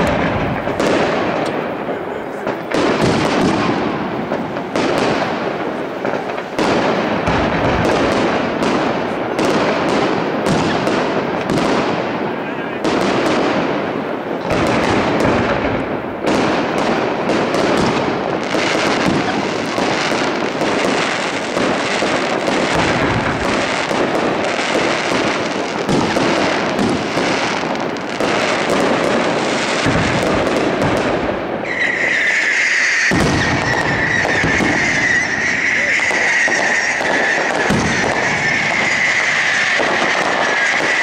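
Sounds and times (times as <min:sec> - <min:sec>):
fireworks bursting and crackling: 0:00.0 - 0:41.0
high whistle: 0:31.6 - 0:39.8.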